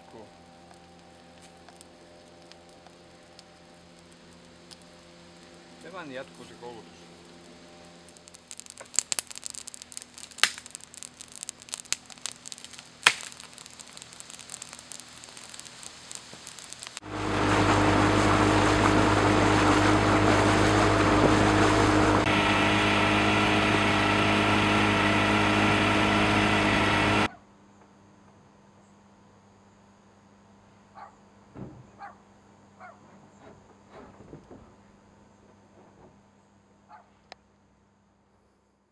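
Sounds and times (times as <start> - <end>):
campfire crackling and popping: 0.0 - 27.3
boat motor running: 16.8 - 27.3.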